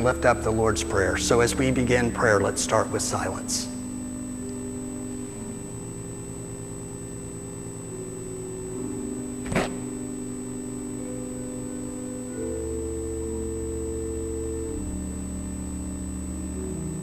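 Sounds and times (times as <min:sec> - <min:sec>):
church organ chords: 0:00.0 - 0:17.0
sharp knock: 0:09.4 - 0:09.9.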